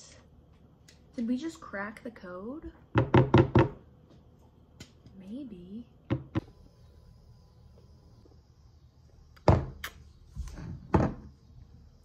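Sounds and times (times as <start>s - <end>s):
knocks and thuds: 2.9s - 3.8s.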